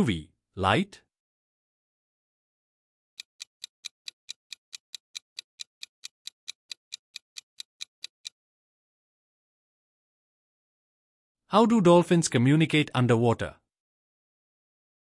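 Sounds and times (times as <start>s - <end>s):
rapid clock ticks: 3.2s - 8.4s.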